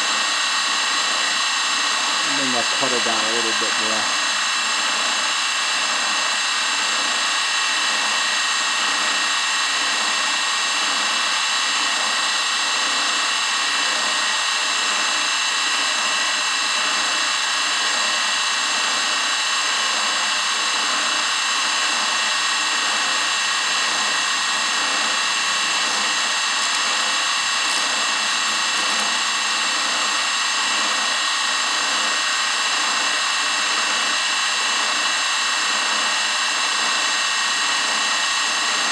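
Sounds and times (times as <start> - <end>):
milling machine whining: 0.0 - 6.4, 19.9 - 35.1
drill bit cutting metal: 0.0 - 38.9.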